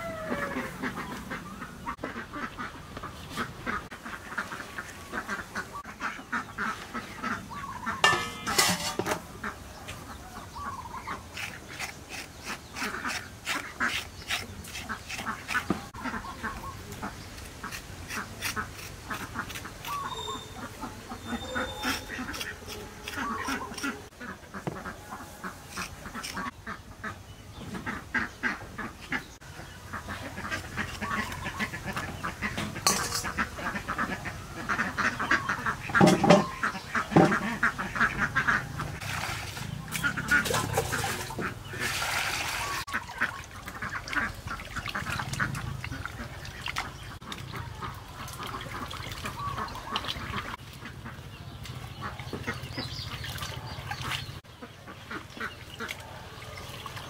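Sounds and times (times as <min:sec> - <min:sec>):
ducks quacking: 0:00.0 - 0:57.0
peeler scraping fruit: 0:11.3 - 0:15.9, 0:17.4 - 0:20.5, 0:21.3 - 0:24.1.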